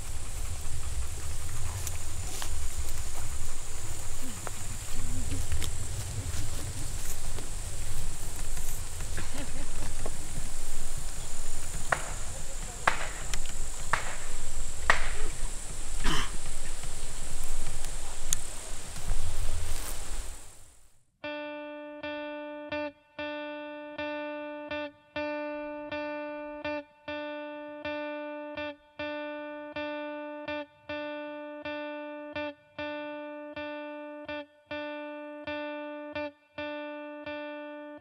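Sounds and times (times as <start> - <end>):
noise burst: 0.0 - 21.0.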